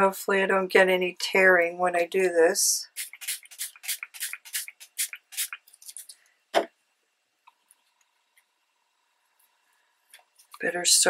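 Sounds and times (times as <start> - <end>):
spray bottle hissing: 3.0 - 6.1.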